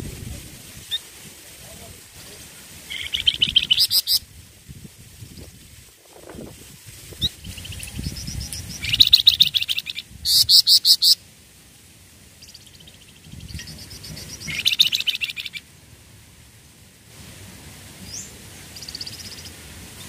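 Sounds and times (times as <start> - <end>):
songbird chirping trills: 2.9 - 4.2, 12.4 - 15.7, 18.0 - 19.6.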